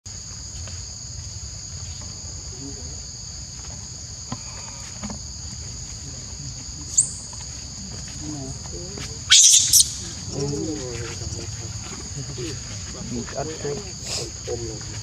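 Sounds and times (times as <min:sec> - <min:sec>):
insect chorus: 0:00.1 - 0:15.0
sharp rising squeak: 0:09.3 - 0:10.0.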